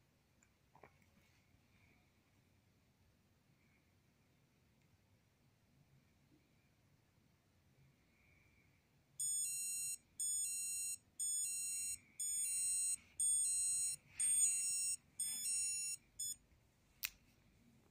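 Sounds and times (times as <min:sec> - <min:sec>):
digital watch alarm beeping: 0:09.2 - 0:16.4.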